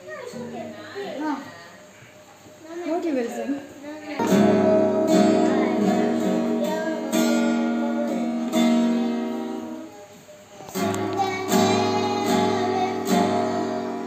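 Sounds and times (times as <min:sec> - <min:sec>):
acoustic guitar chords strummed: 0:04.2 - 0:09.9, 0:10.7 - 0:14.0.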